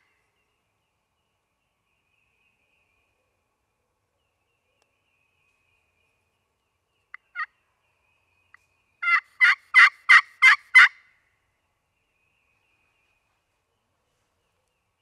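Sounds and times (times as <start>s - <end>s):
soft turkey call notes: 8.5s - 11.0s
turkey call yelps: 9.0s - 11.0s.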